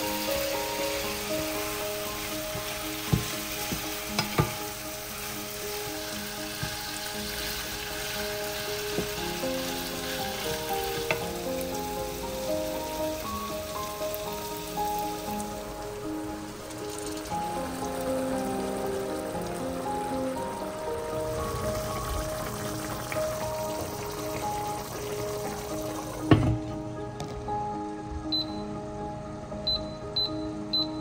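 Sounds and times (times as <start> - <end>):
food sizzling in hot oil: 0.0 - 26.6
soft background music: 0.0 - 31.0
knocks against pan: 3.1 - 4.6, 26.3 - 26.7.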